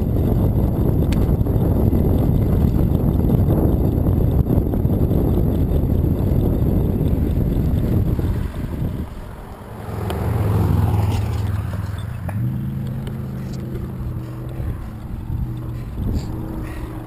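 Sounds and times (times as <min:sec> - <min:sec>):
low steady hum: 0:00.0 - 0:17.0
wind rushing over microphone: 0:00.0 - 0:17.0
passing car: 0:05.1 - 0:17.0.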